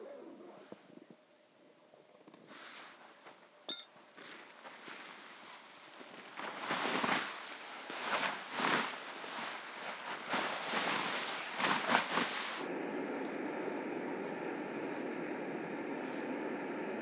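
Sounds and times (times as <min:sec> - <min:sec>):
tent fabric rustling and flapping: 0:04.1 - 0:12.7.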